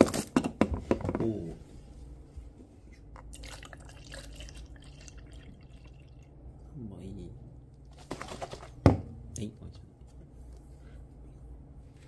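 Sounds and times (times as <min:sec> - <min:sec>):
water pouring: 0:03.3 - 0:06.3.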